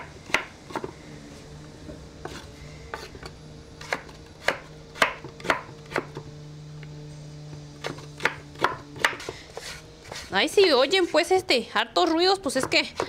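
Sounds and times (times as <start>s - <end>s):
knife chopping on wooden board: 0.0s - 0.9s, 3.8s - 6.2s, 7.8s - 10.3s
low hum: 0.0s - 12.4s.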